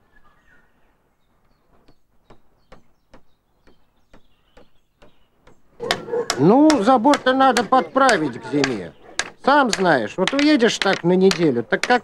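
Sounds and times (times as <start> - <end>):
faint bird chirps: 0.0 - 6.3
hammer knocking on wood: 1.8 - 12.0.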